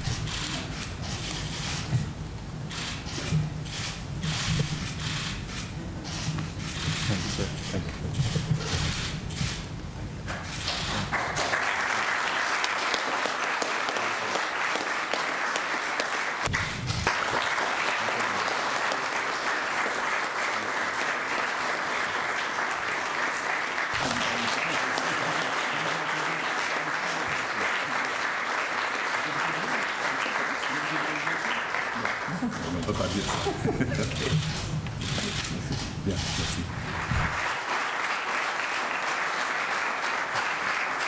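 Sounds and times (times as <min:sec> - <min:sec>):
audience clapping: 0:02.7 - 0:03.0, 0:03.7 - 0:05.7, 0:06.4 - 0:09.7, 0:10.3 - 0:41.0.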